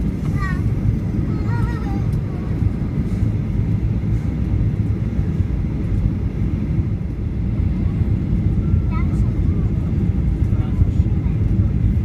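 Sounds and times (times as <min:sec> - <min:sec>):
airplane cabin engine rumble: 0:00.0 - 0:12.0.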